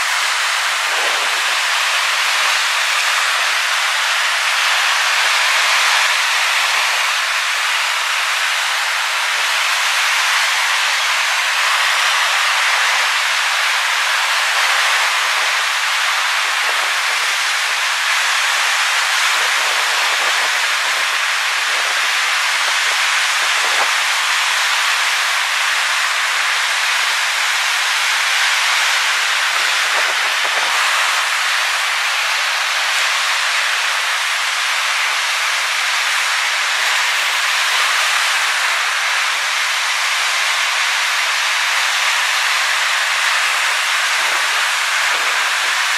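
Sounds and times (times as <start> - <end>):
waves breaking on shore: 0.0 - 45.9.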